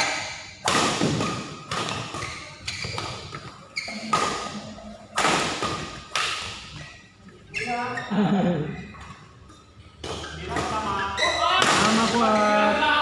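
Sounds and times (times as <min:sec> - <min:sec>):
rackets hitting shuttlecock: 0:00.2 - 0:06.8.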